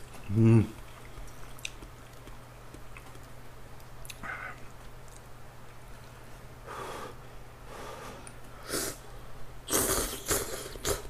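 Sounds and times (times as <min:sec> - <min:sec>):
faint low hum: 0:00.0 - 0:11.0
slurping noodles: 0:09.7 - 0:11.0.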